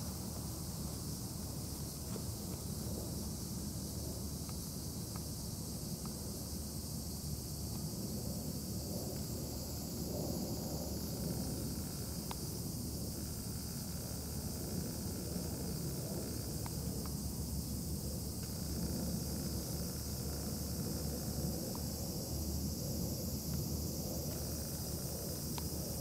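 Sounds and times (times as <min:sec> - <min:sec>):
faint ticks: 0:04.4 - 0:06.2, 0:11.8 - 0:12.5, 0:14.8 - 0:17.2, 0:23.5 - 0:26.0.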